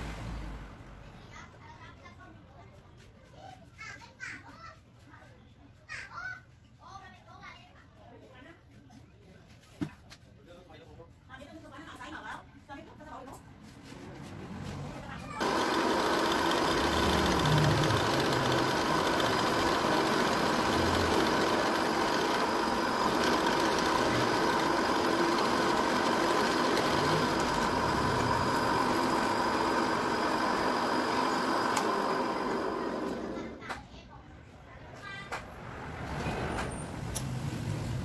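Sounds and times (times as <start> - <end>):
drill bit cutting plastic: 15.4 - 33.5
drill press motor running: 15.4 - 33.7.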